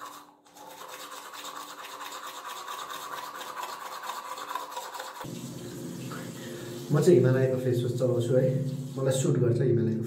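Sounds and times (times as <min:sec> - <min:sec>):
toothbrush scrubbing teeth: 0:00.0 - 0:05.4.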